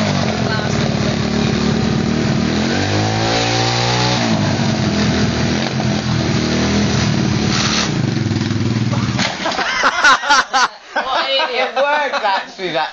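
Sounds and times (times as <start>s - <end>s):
motorbike engine revving: 0.0s - 9.5s.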